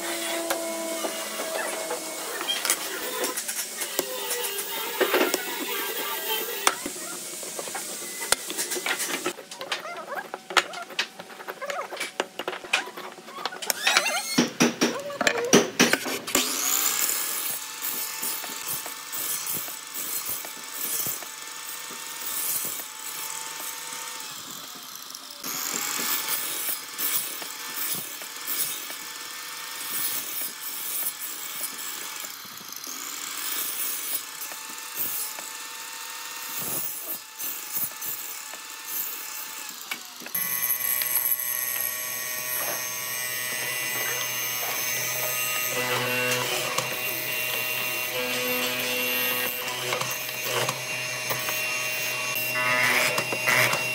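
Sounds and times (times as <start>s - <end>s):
power tool motor whining: 0.0s - 14.5s, 16.2s - 53.9s
rough grinding on wood: 29.8s - 53.9s.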